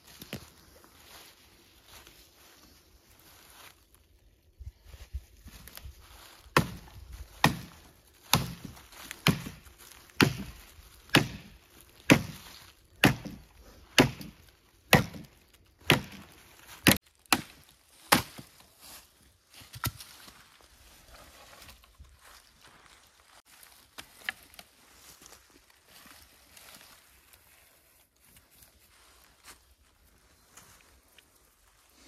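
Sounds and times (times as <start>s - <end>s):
sickle chopping dry branch: 5.6s - 18.8s, 19.5s - 20.6s, 23.6s - 24.7s.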